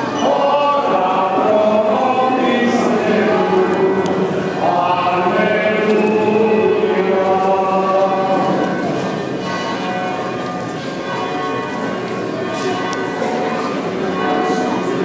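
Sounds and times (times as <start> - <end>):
voices singing: 0.0 - 8.9
church bells ringing: 0.0 - 15.0.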